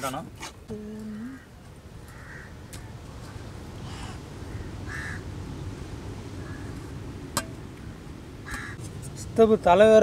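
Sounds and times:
crow cawing: 1.2s - 3.0s, 3.8s - 5.3s, 6.4s - 6.9s, 8.4s - 8.8s.

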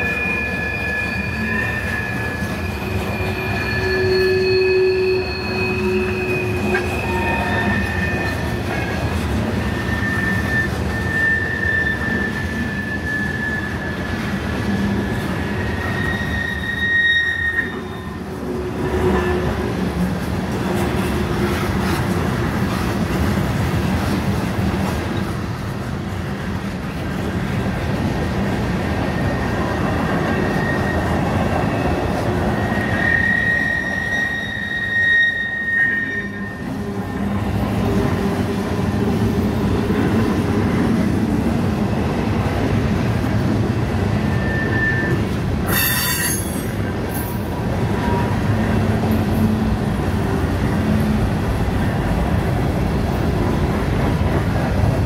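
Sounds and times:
high wheel squeal: 0.0s - 19.8s, 29.0s - 39.2s, 43.9s - 49.6s
train wheels rolling on rail: 0.0s - 55.0s.

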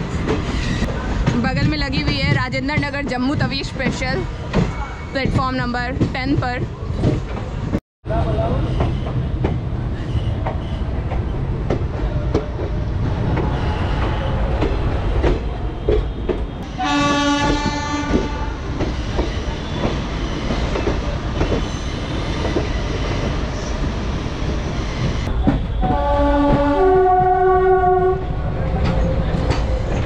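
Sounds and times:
train running over track: 0.0s - 30.0s
train horn: 16.6s - 18.7s, 25.6s - 28.4s.

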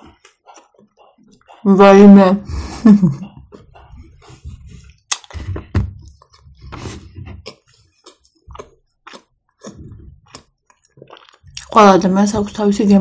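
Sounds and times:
chewing mouth clicks and smacks: 0.0s - 1.7s, 3.3s - 11.8s.

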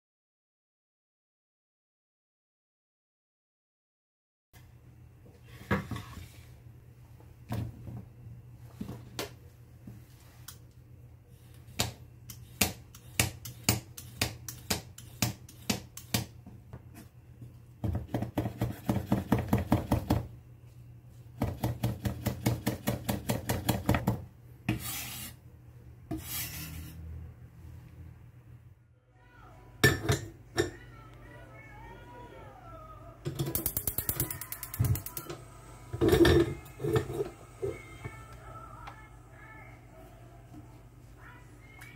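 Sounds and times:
knife chopping on wooden board: 12.6s - 16.3s, 17.8s - 20.3s
knife scraping board: 24.7s - 25.4s, 26.1s - 27.0s.

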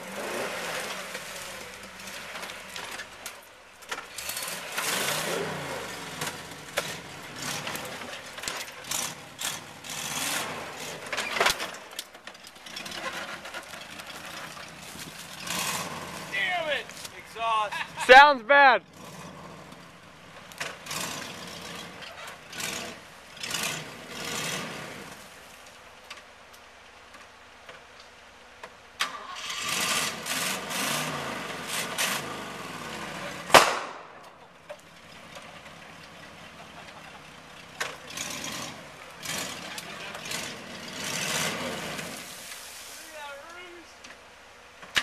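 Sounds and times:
car engine revving: 0.0s - 3.3s, 3.9s - 11.5s, 12.6s - 18.2s, 18.8s - 25.2s, 29.1s - 33.9s, 35.0s - 42.4s
sharp crack: 33.4s - 34.4s.

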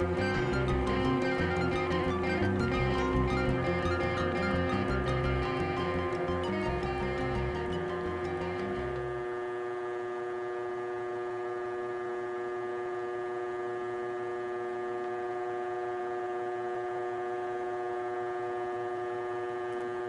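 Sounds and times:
fan humming steadily: 0.0s - 20.0s.

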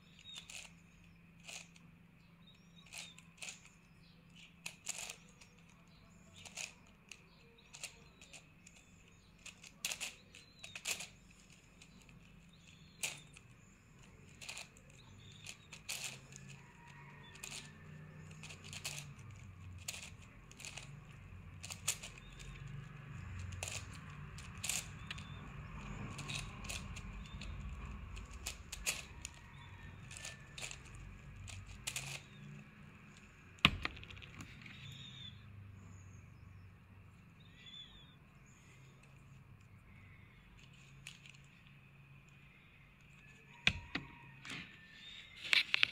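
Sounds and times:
plastic puzzle cube clicks: 0.1s - 1.9s, 2.8s - 35.2s.

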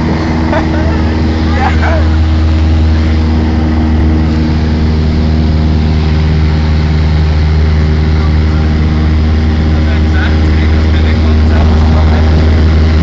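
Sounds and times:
airplane engine droning: 0.0s - 13.0s.

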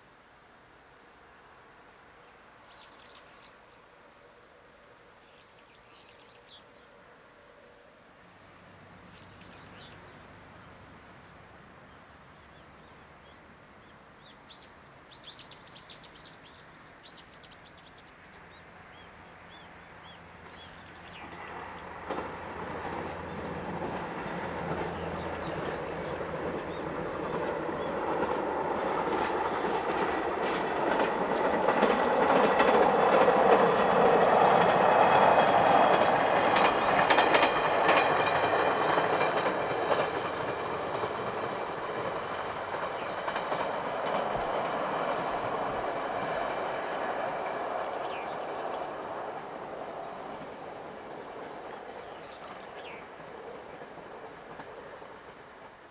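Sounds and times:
train rumbling past: 5.3s - 13.2s, 14.2s - 55.9s
train wheels clicking over rail joints: 20.4s - 55.8s.

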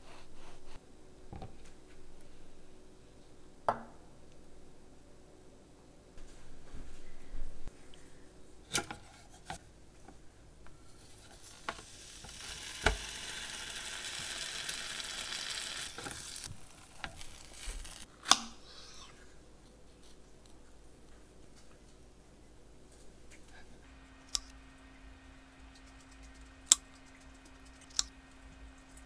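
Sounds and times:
sandwich sizzling in waffle maker: 11.0s - 18.1s.

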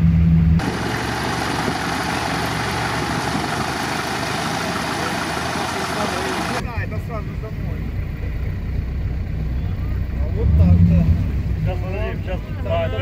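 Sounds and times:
truck engine running: 0.0s - 6.6s.

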